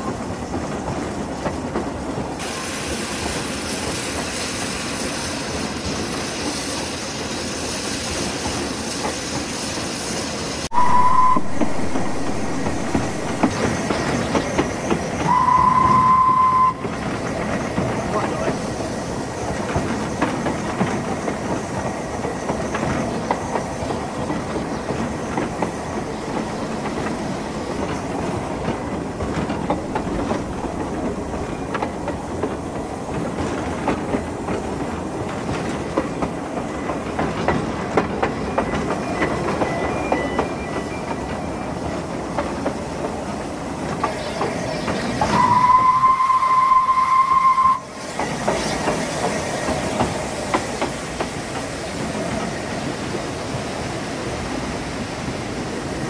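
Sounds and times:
steam locomotive running: 0.0s - 56.0s
steam whistle blast: 10.7s - 11.8s, 15.2s - 16.9s, 45.2s - 47.9s.

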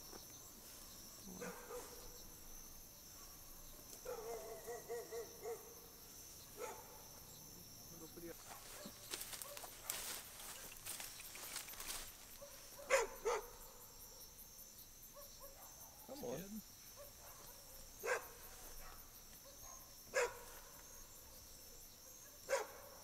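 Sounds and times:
crickets and night insects: 0.0s - 23.0s
dog barking: 1.3s - 2.2s, 4.0s - 5.8s, 6.5s - 7.2s, 8.4s - 10.1s, 12.4s - 14.0s, 15.1s - 16.4s, 17.0s - 20.8s, 22.0s - 23.0s.

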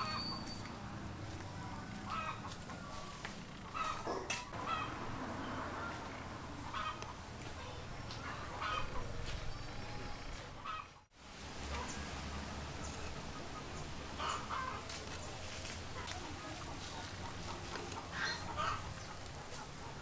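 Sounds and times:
chickens clucking: 1.7s - 5.0s, 5.8s - 9.5s, 10.3s - 11.1s, 13.1s - 20.0s.

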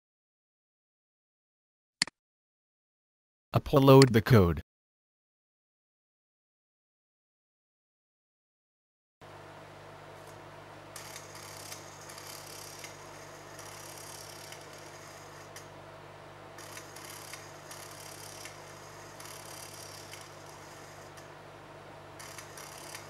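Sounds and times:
steady low hum: 9.2s - 23.0s
stepper motor whirring: 11.0s - 15.7s, 16.6s - 21.3s, 22.2s - 23.0s.

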